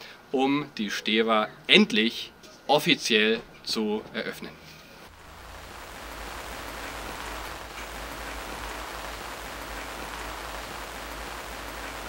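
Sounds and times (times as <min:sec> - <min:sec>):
steady hiss: 0:05.0 - 0:12.0
low hum: 0:05.1 - 0:12.0.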